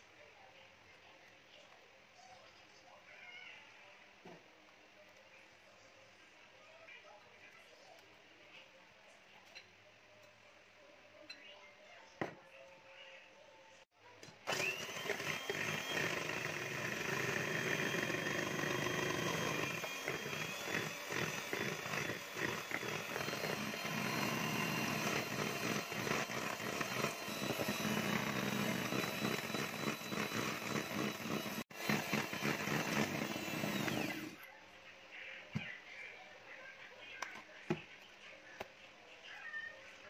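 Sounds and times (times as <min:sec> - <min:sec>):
electric hand mixer whisking: 0:14.4 - 0:34.4.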